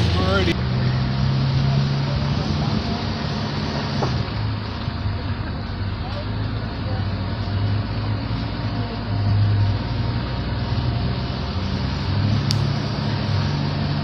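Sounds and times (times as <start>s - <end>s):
vehicle engine running: 0.0s - 14.0s
sharp click: 12.5s - 12.7s.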